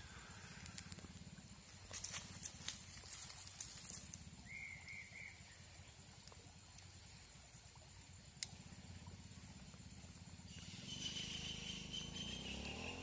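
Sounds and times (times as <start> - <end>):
low steady rumble: 0.0 - 13.0
arched chirps: 10.5 - 13.0.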